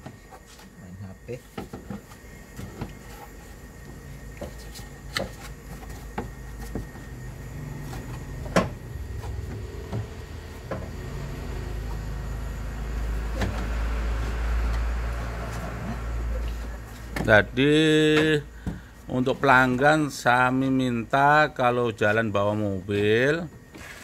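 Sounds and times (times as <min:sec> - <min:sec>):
low rumble: 0:07.2 - 0:14.1.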